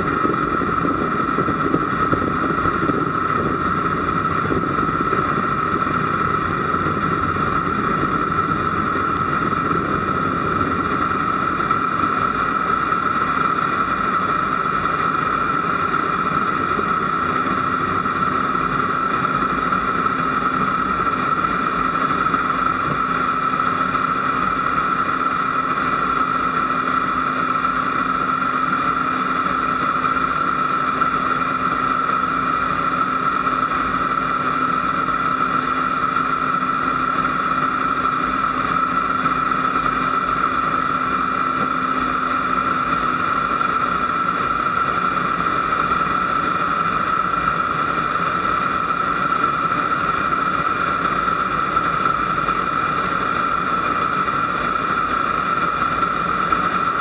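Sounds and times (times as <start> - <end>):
jet engine high whine: 0.0 - 57.0
low engine hum: 0.0 - 57.0.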